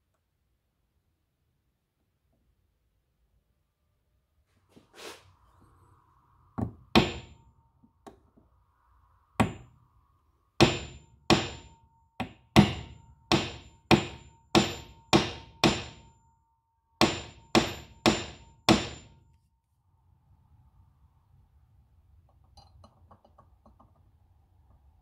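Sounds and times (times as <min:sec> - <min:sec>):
hammer tapping metal rivet: 0:10.6 - 0:16.1.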